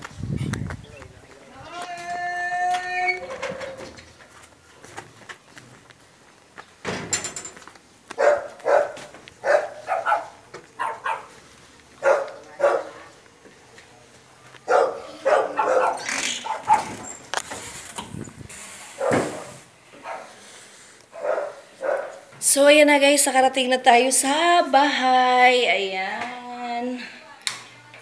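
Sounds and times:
dog barking: 0:08.2 - 0:11.4, 0:12.0 - 0:13.1, 0:14.7 - 0:16.9, 0:19.0 - 0:20.4, 0:21.2 - 0:22.3.

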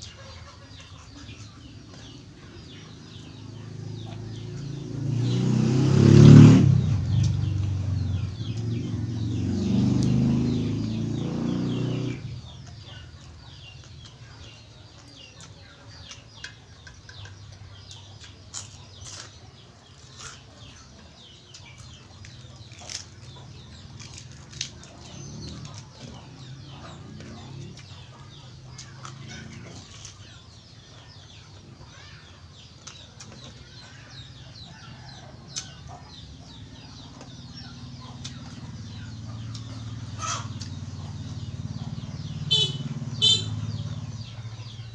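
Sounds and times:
person chewing and smacking: 0:15.0 - 0:19.4, 0:20.0 - 0:23.3, 0:23.9 - 0:26.2.

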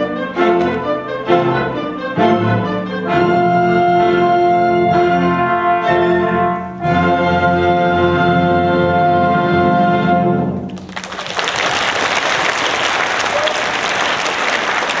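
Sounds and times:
audience applause: 0:10.8 - 0:15.0.

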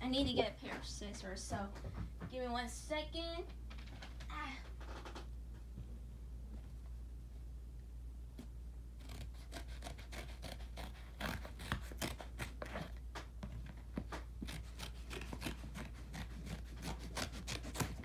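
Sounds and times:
scissors cutting cardboard: 0:09.0 - 0:18.0.

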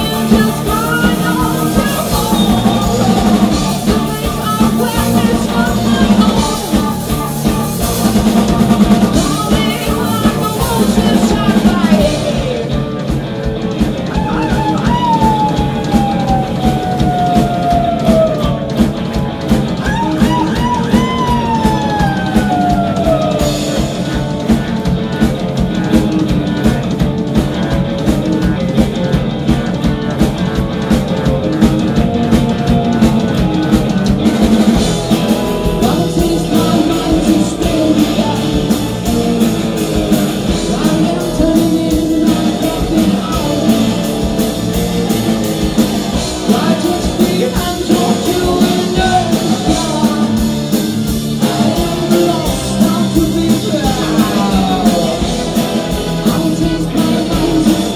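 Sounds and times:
woman singing lead vocal: 0:00.0 - 0:07.3, 0:09.0 - 0:12.9, 0:35.7 - 0:39.7, 0:40.3 - 0:44.2, 0:46.3 - 0:50.6
drum kit with cymbals: 0:00.0 - 0:57.9
electric bass: 0:00.0 - 0:57.9
electric guitars: 0:00.0 - 0:57.9.

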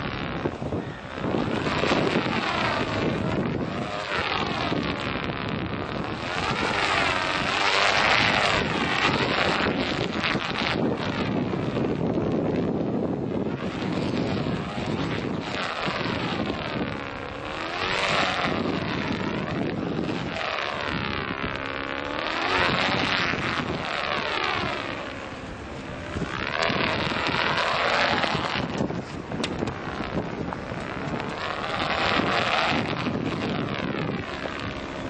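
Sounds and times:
wind blowing across microphone: 0:00.0 - 0:35.0.

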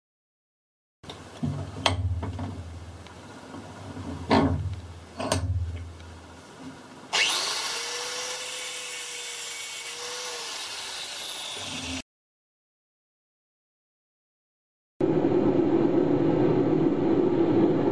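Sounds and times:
bench vise metal clank: 0:04.2 - 0:05.8
angle grinder cutting steel: 0:07.1 - 0:12.0.

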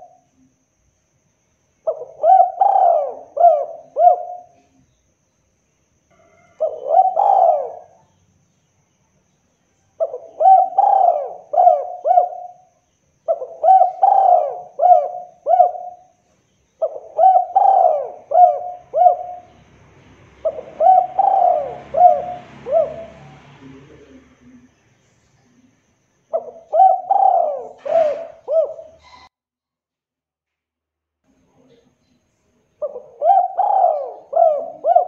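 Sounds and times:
dove cooing: 0:01.9 - 0:04.8, 0:06.3 - 0:08.1, 0:10.0 - 0:16.2, 0:16.8 - 0:19.7, 0:20.3 - 0:24.7, 0:26.3 - 0:29.3, 0:32.8 - 0:35.0.

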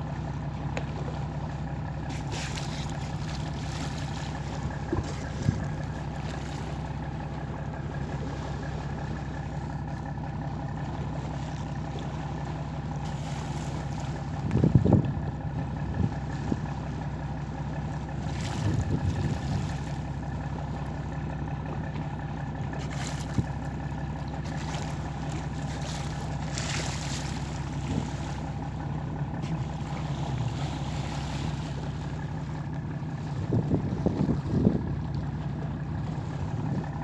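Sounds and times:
motorboat engine hum: 0:00.0 - 0:37.0.

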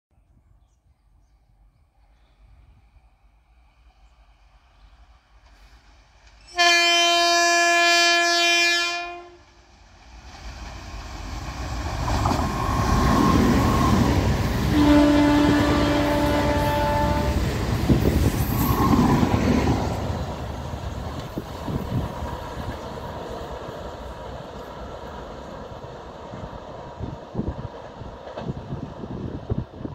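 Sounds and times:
train wheels rumbling on rail: 0:02.1 - 0:29.9
train horn blast: 0:06.5 - 0:09.6, 0:14.6 - 0:17.5.

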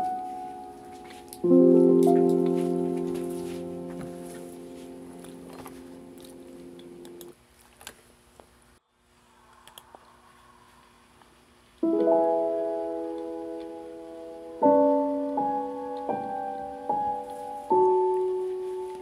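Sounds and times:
soft slow piano chords: 0:00.0 - 0:07.4, 0:11.8 - 0:19.0.

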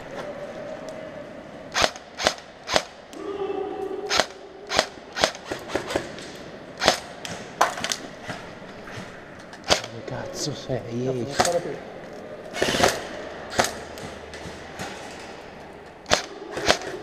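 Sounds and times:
airsoft rifle shots: 0:01.7 - 0:03.1, 0:04.1 - 0:08.4, 0:09.6 - 0:10.0, 0:11.3 - 0:11.8, 0:12.5 - 0:15.2, 0:16.0 - 0:17.0.

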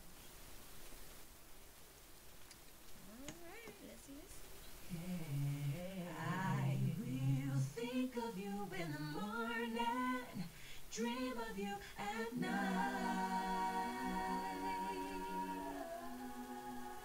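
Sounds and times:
woman singing stacked harmonies: 0:04.9 - 0:17.0.

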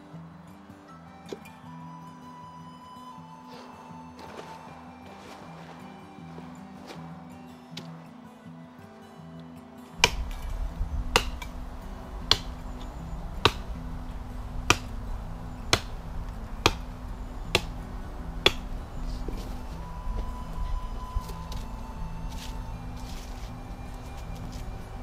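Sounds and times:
axe chopping into log: 0:10.0 - 0:11.6, 0:12.3 - 0:13.7, 0:14.6 - 0:15.0, 0:15.7 - 0:16.9, 0:17.5 - 0:17.8, 0:18.4 - 0:18.8.

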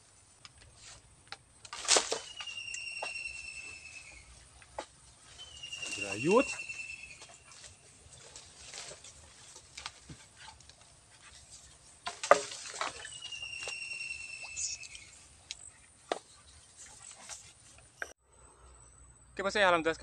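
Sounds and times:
pole knocking among branches: 0:00.4 - 0:14.0, 0:14.8 - 0:18.1
long high whistle: 0:02.3 - 0:04.2.

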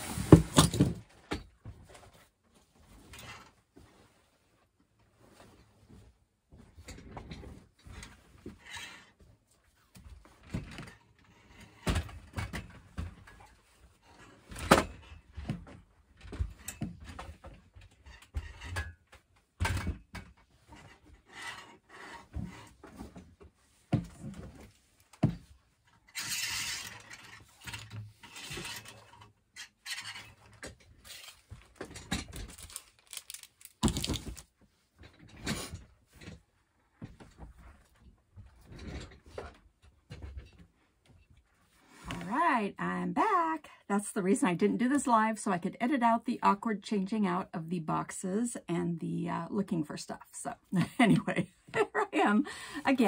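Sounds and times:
boxes knocking and thumping: 0:00.0 - 0:02.0, 0:33.8 - 0:34.4
rustling and scraping: 0:00.0 - 0:42.7.

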